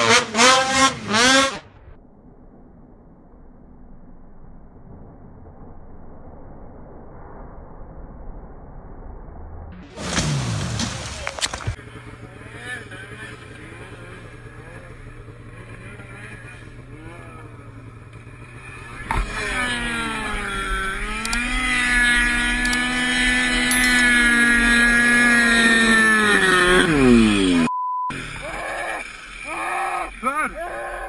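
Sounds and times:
snowmobile engine: 0.0 - 1.9, 9.8 - 31.0.

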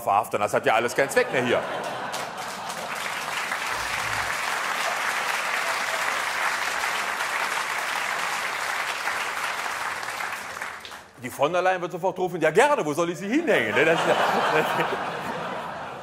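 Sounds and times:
audience applauding: 1.0 - 11.2.

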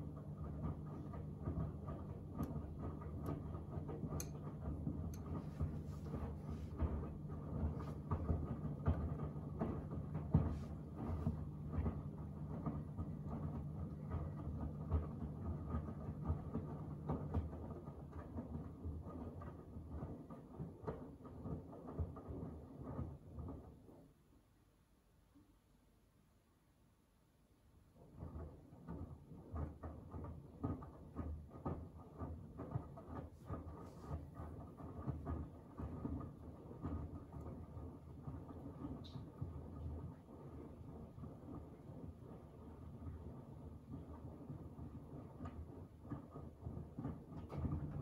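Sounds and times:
washing machine drum motor humming: 0.0 - 23.7, 28.0 - 48.0.

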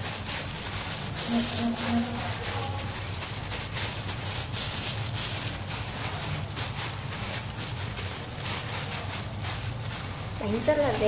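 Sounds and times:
plastic gloves crinkling: 0.0 - 11.0
steady low hum: 0.8 - 8.2.

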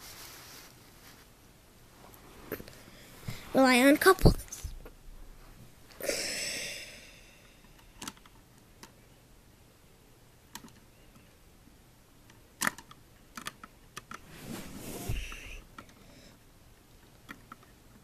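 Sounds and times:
small plastic clicks and taps: 7.7 - 9.0, 10.5 - 11.3, 12.3 - 14.2, 17.1 - 18.0
scraping rustle: 14.3 - 15.4.

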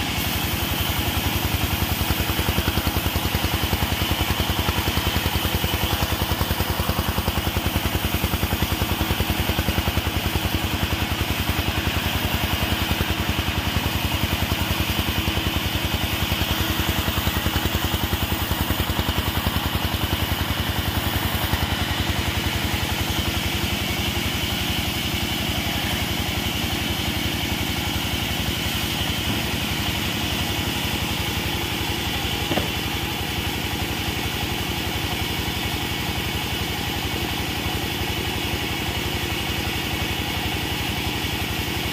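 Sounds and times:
portable sawmill engine running: 0.0 - 41.9
short knock: 32.4 - 32.9.

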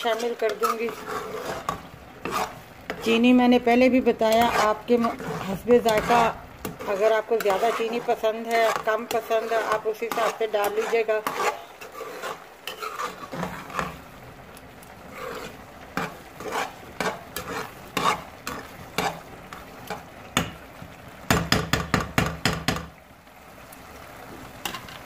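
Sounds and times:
metal spoon scraping a saucepan: 0.0 - 3.3, 4.1 - 14.0, 15.1 - 20.0
faint sizzle: 0.0 - 25.0
spoon knocking against pan: 21.3 - 23.0.

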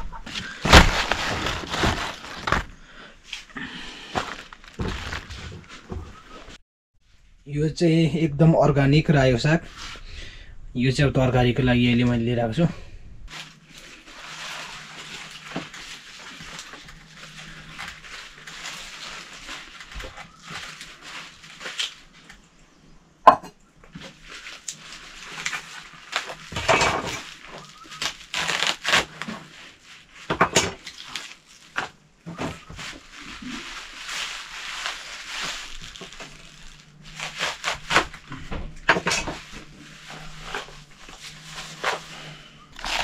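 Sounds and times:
leaves rustling: 0.0 - 2.7, 13.3 - 22.6, 23.9 - 43.0.

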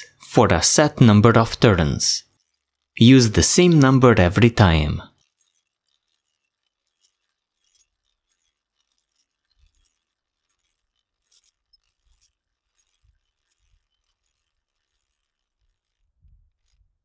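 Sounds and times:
hand drill gears clicking: 2.2 - 3.0, 5.1 - 16.9.

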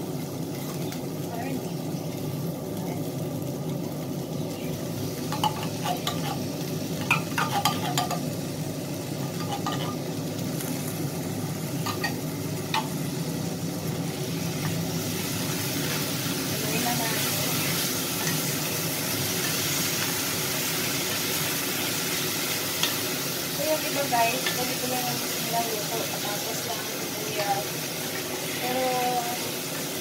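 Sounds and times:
frying sizzle: 0.0 - 30.0.

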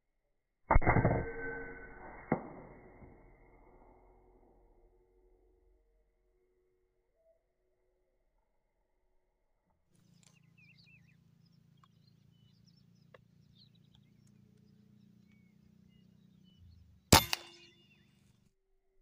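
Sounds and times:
small birds chirping: 10.0 - 18.3
air rifle shot crack: 17.1 - 17.7.

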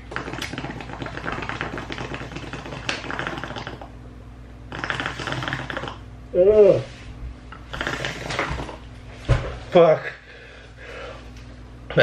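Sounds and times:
water bubbling in bong: 0.0 - 4.0, 4.7 - 6.0.

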